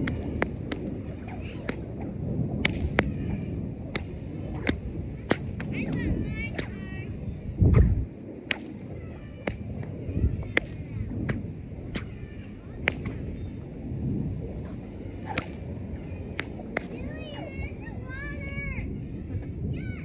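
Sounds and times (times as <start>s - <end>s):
whip cracking: 0.0s - 6.8s, 7.7s - 12.2s, 12.8s - 13.3s, 14.6s - 15.7s, 16.4s - 17.6s.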